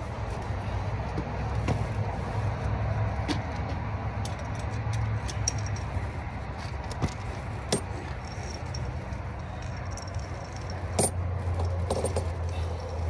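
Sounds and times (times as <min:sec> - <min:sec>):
tire chain links clinking: 0:04.1 - 0:13.0.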